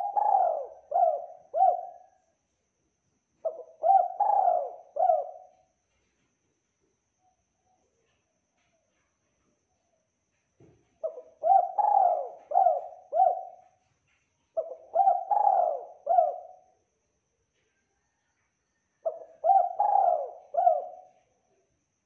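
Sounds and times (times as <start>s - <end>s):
dove cooing: 0.0s - 2.2s, 3.4s - 5.6s, 11.0s - 13.8s, 14.6s - 16.6s, 19.0s - 21.2s.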